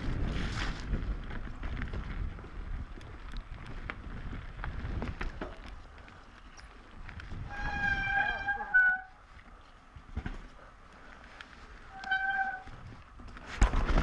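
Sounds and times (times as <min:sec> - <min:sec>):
wind on microphone: 0:00.0 - 0:05.9, 0:06.5 - 0:09.1
bike chain and frame rattling: 0:00.0 - 0:14.0.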